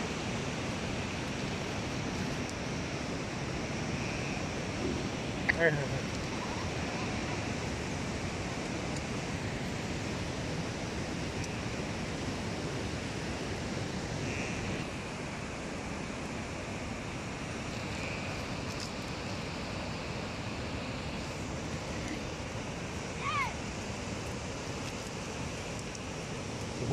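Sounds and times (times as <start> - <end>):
steady rushing outdoor noise: 0.0 - 26.9.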